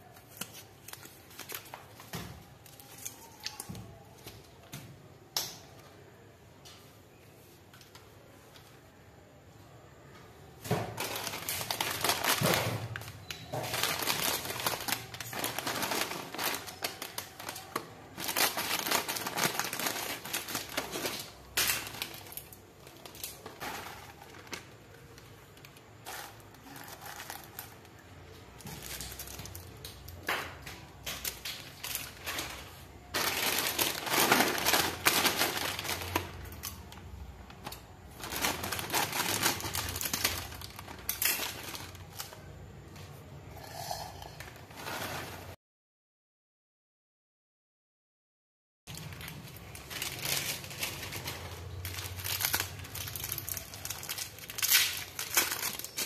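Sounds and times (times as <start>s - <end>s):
plastic snack packets crinkling: 0.0s - 4.7s, 10.7s - 42.8s, 48.9s - 56.0s
hand rummaging through snacks: 10.8s - 42.8s, 48.9s - 56.0s.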